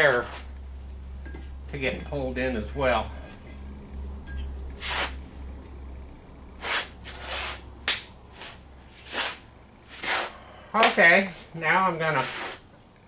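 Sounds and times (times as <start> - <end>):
low steady hum: 0.0 - 13.0
knife scratching through fibre blanket: 4.8 - 5.2, 6.6 - 7.6, 8.3 - 10.3, 12.2 - 12.6.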